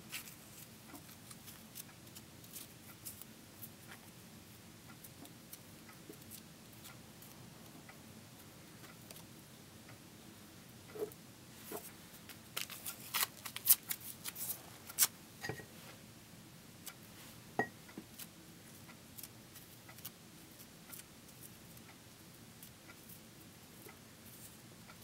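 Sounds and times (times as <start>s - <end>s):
paper crinkling and rustling: 12.5s - 15.1s.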